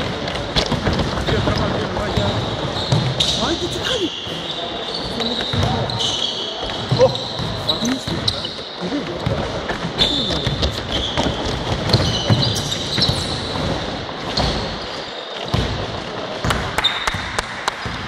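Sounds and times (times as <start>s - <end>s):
sneakers squeaking: 0.0s - 17.2s
basketball bouncing on wooden floor: 10.4s - 13.8s.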